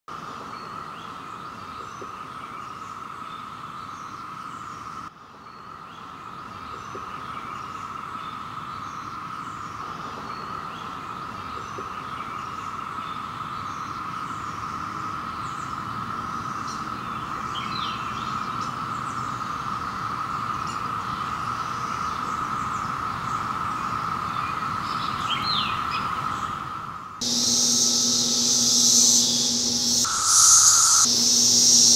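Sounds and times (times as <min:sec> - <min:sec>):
cicadas chorusing: 0:07.1 - 0:31.9
birds chirping: 0:27.2 - 0:31.9.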